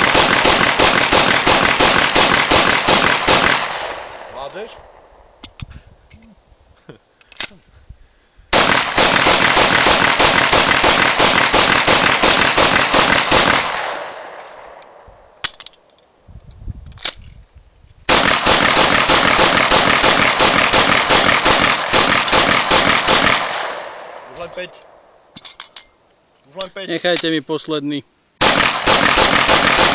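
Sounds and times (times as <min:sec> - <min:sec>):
rapid pistol shots echoing: 0:00.0 - 0:05.1, 0:08.5 - 0:15.0, 0:18.1 - 0:24.4, 0:28.4 - 0:29.9.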